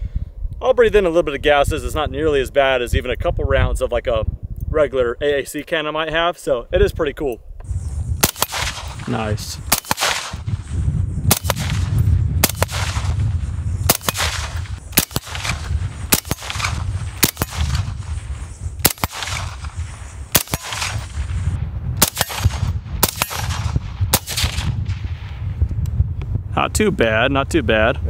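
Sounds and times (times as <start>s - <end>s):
suppressed rifle shots: 8.2s - 25.4s.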